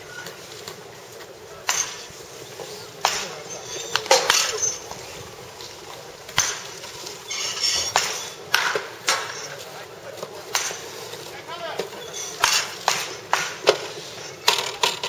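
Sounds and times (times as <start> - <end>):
wooden bat hitting baseballs: 1.6 - 5.0, 6.2 - 9.6, 10.2 - 11.0, 11.7 - 15.0.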